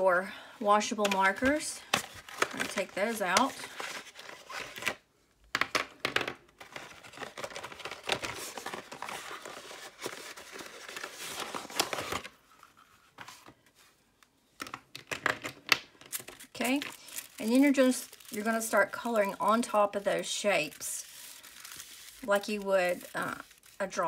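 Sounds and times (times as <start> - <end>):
cardboard box rustling: 6.6 - 13.6.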